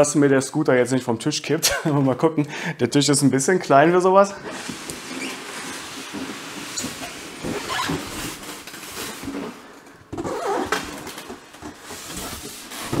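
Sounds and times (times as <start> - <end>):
cardboard scraping against styrofoam: 4.5 - 9.6, 10.2 - 13.0.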